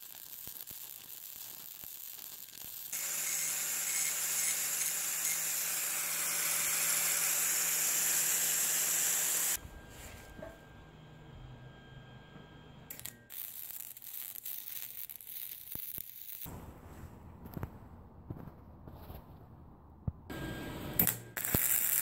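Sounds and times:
welder arc crackling: 0:00.0 - 0:09.6, 0:12.9 - 0:16.6, 0:20.9 - 0:22.0
angle grinder on steel: 0:03.0 - 0:09.6.

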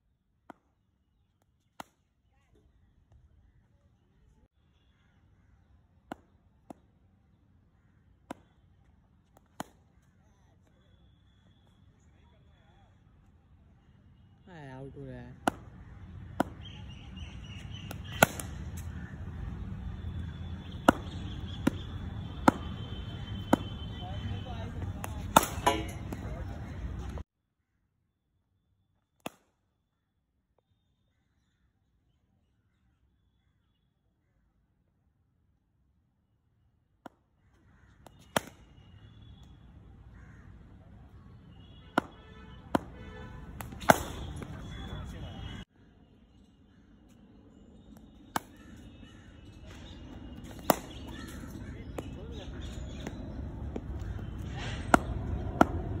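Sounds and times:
low outdoor hum: 0:01.2 - 0:27.2, 0:42.8 - 0:56.0
faint bird calls: 0:44.6 - 0:55.2.

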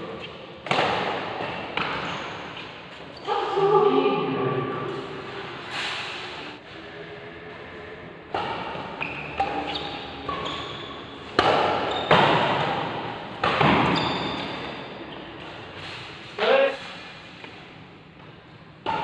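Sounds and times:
rackets hitting shuttlecock: 0:00.6 - 0:02.1, 0:08.3 - 0:10.4, 0:11.2 - 0:14.8, 0:18.8 - 0:19.0
shoes squeaking on court: 0:01.5 - 0:03.3, 0:08.8 - 0:12.8, 0:13.8 - 0:16.7.

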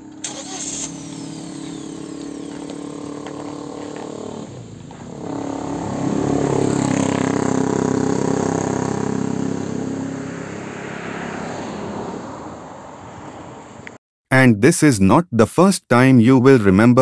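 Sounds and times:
vehicle engine running: 0:00.0 - 0:10.8.

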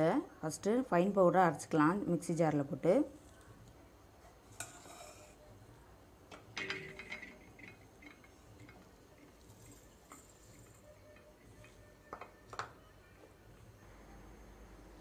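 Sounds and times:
steel jar and bowls clattering: 0:06.6 - 0:10.8.

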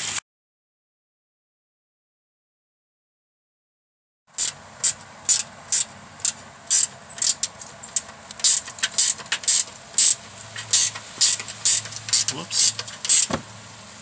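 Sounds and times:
ratcheting wrench clicking: 0:04.4 - 0:13.4.

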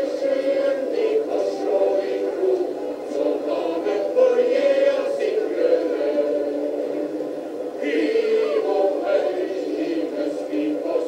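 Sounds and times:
male choir singing: 0:00.0 - 0:11.0.

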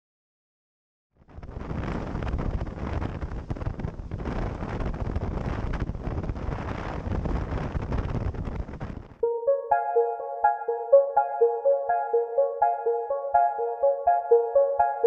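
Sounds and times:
wind buffeting microphone: 0:01.3 - 0:09.2.

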